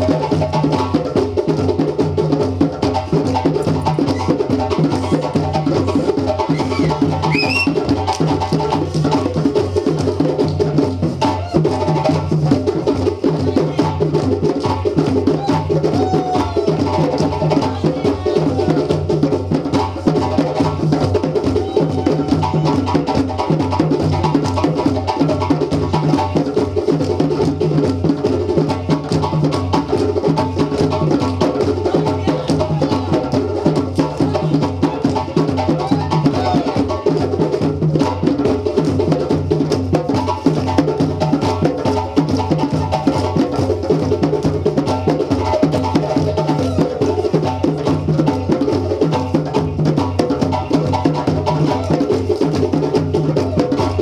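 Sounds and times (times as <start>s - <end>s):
djembe drum ensemble: 0.0s - 54.0s.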